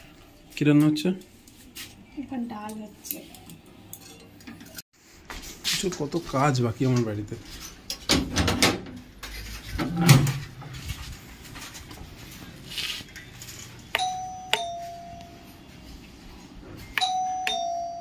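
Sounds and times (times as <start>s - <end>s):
doorbell ding-dong chime: 14.0s - 15.7s, 16.9s - 18.0s.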